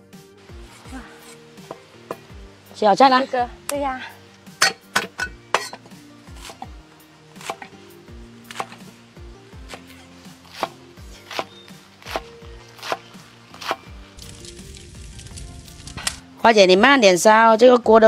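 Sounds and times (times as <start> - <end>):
cleaver chopping on wooden board: 0.6 - 2.2, 4.6 - 6.8, 7.4 - 7.8, 8.5 - 8.9, 9.6 - 13.9.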